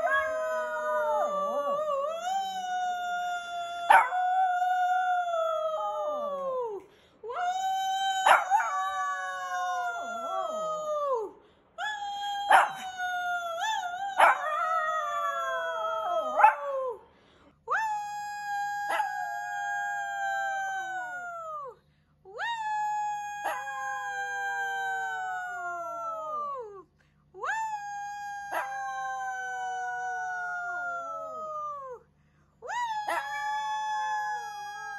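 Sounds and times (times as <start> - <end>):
dog howling: 0.0 - 6.7, 8.0 - 11.3, 12.2 - 17.0, 18.7 - 21.4, 23.2 - 26.3, 28.1 - 31.8.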